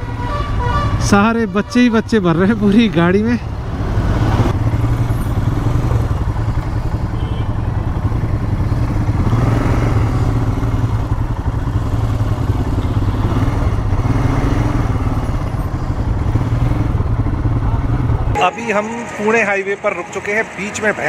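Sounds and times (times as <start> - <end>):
motorcycle engine idling: 2.0 - 18.4.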